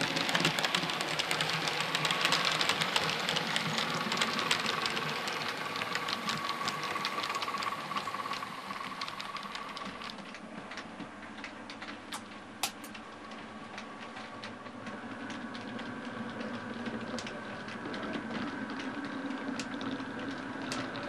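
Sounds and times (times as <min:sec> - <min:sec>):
model train motor whine: 0:00.0 - 0:10.2
wheels clicking over rail joints: 0:00.0 - 0:21.0.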